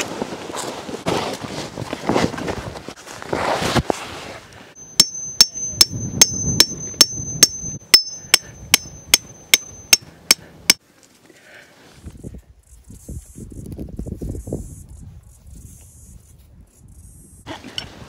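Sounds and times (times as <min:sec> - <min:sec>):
hammer striking metal tent peg: 0:04.8 - 0:10.8.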